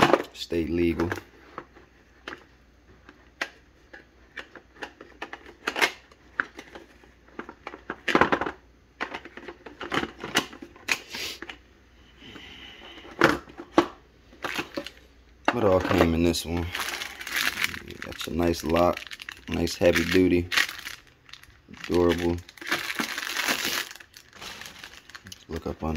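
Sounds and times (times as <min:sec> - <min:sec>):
rustling: 0:15.8 - 0:25.4.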